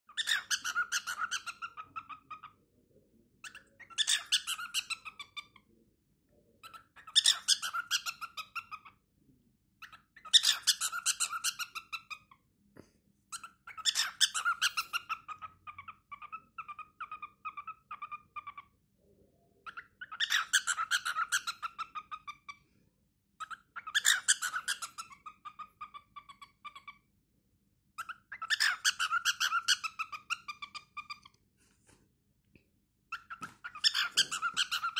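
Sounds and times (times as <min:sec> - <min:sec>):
cockatiel singing: 0:00.1 - 0:02.6, 0:03.4 - 0:05.6, 0:06.6 - 0:09.0, 0:09.8 - 0:12.4, 0:13.3 - 0:18.8, 0:19.6 - 0:22.6, 0:23.4 - 0:27.0, 0:28.0 - 0:31.4, 0:33.1 - 0:34.9.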